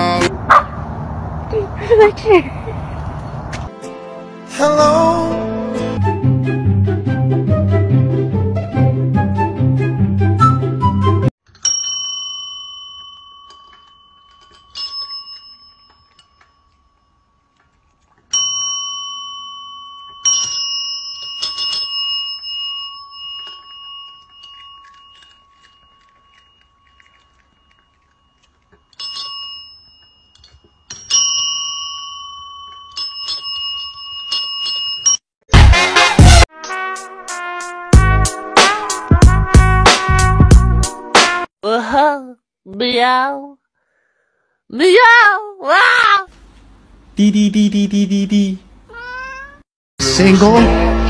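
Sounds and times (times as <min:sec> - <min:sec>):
music: 0:03.7 - 0:11.3, 0:35.6 - 0:41.5, 0:50.0 - 0:51.0
service bell dings: 0:11.6 - 0:17.3, 0:18.3 - 0:26.8, 0:28.9 - 0:35.2.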